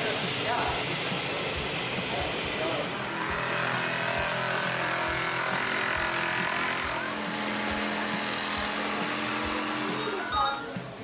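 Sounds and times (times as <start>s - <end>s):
electric jigsaw cutting wood: 2.6s - 10.4s.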